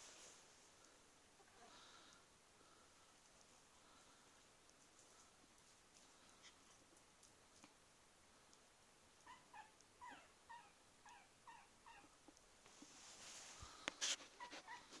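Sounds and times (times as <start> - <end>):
rustle: 0.0 - 2.2, 2.8 - 15.0
puppy whimpering: 9.2 - 12.2, 14.4 - 15.0.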